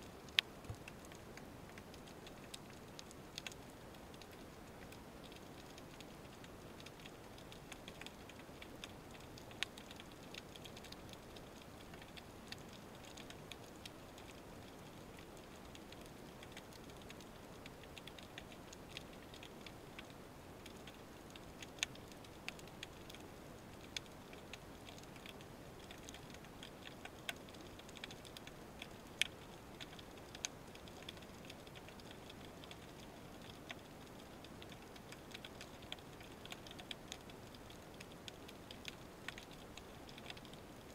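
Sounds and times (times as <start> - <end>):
sharp clicks and crackles: 0.0 - 40.9.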